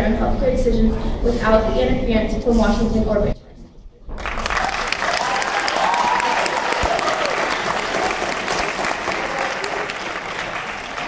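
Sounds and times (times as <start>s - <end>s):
crowd applauding: 4.2s - 11.0s.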